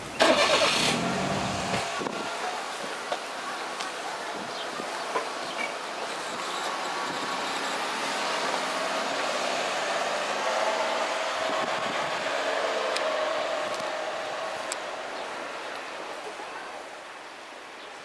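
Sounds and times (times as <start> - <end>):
motor vehicle passing: 7.3 - 15.6.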